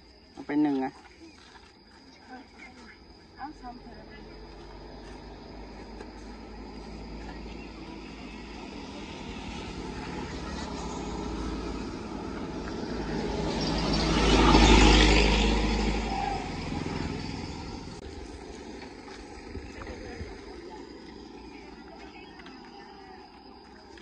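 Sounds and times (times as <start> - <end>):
vehicle passing by: 3.3 - 24.0.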